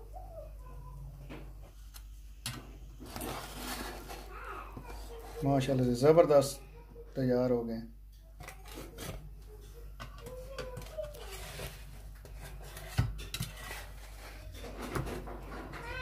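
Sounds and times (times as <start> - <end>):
kitchenware clinks and knocks: 14.4 - 16.0.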